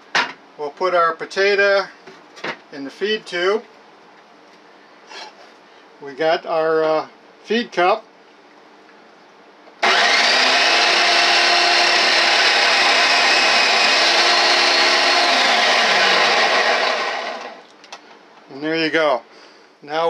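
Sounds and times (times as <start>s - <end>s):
food processor motor running: 9.8s - 17.6s.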